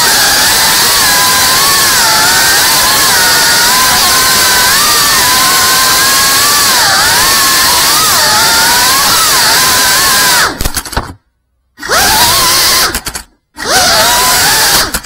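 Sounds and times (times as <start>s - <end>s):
drone motors whining: 0.0s - 11.2s, 11.8s - 15.0s.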